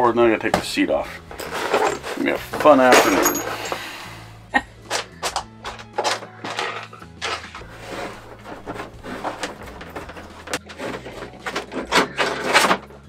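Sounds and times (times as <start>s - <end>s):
fish tape scraping and rattling: 5.0s - 13.0s.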